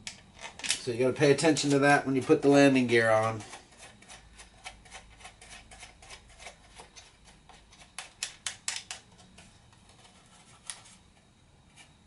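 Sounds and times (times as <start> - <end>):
plastic clicks and taps: 8.0 - 9.0.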